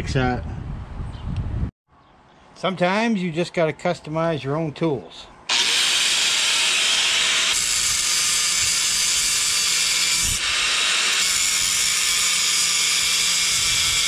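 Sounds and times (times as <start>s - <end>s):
angle grinder cutting metal: 5.5s - 14.0s.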